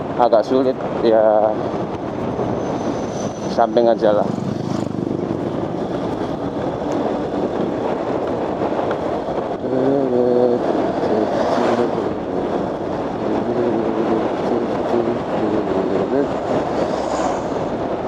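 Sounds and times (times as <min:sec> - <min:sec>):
wind and road noise: 0:00.0 - 0:18.0
motorcycle engine running: 0:04.1 - 0:08.9.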